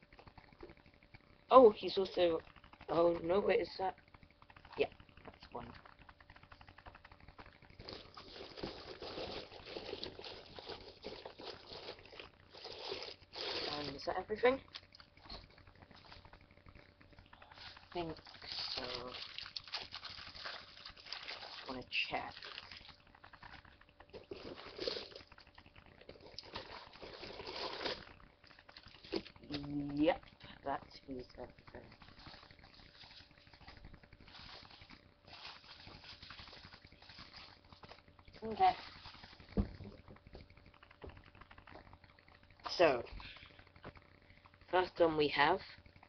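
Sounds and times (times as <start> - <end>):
packaging rustling and crackling: 4.4 - 29.6, 31.6 - 42.0.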